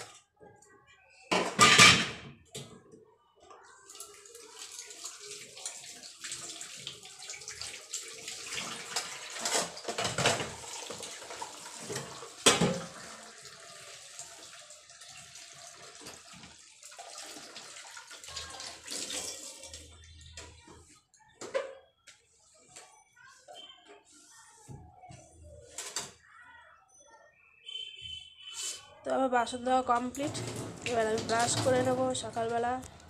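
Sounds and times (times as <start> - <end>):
tap water running into sink: 3.9 - 20.0, 30.0 - 33.0
metal utensils clanking: 30.0 - 32.6.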